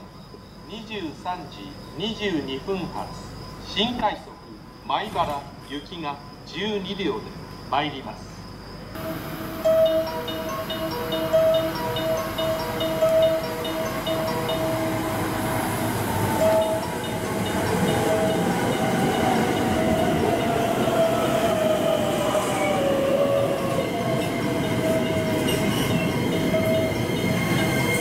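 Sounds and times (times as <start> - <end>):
electric train running: 9.0 - 28.0
train wheel squeal: 9.0 - 28.0.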